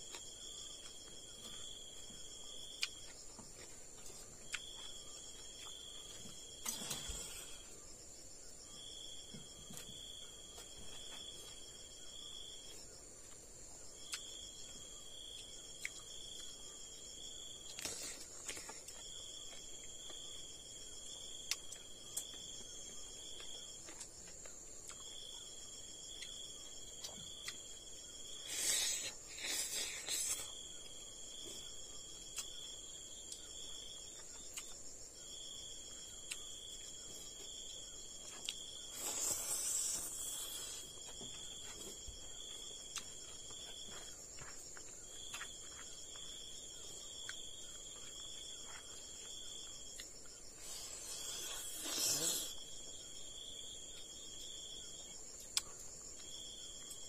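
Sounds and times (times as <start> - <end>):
insects droning: 0.0 - 57.0
lower insect chirr: 0.0 - 57.0
eating noises: 26.0 - 31.0, 38.2 - 52.8.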